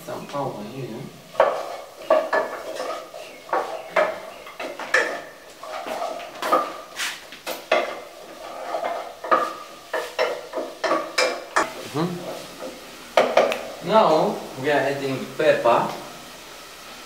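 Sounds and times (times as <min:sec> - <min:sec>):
spoon scraping metal pot: 0:01.3 - 0:04.1, 0:07.7 - 0:12.4.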